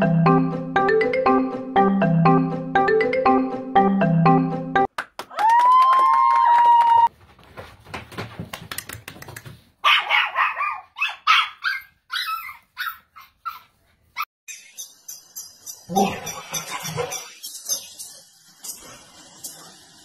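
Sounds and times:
puppies yapping: 0:09.9 - 0:14.3.

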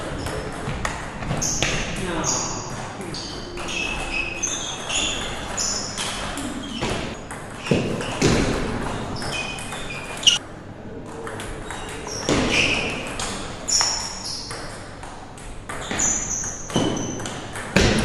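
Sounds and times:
table tennis ball pinging: 0:00.0 - 0:10.4, 0:11.1 - 0:18.0.

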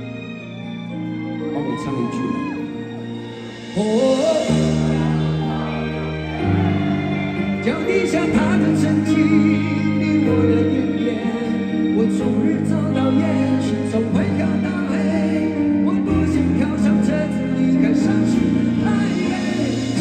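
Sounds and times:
live rock band playing: 0:00.0 - 0:20.0
person singing: 0:01.4 - 0:20.0.

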